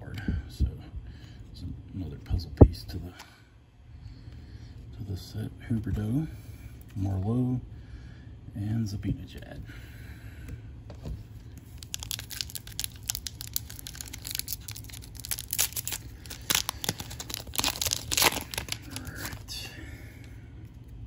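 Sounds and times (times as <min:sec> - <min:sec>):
foil wrapper crinkling and tearing: 0:11.6 - 0:19.7.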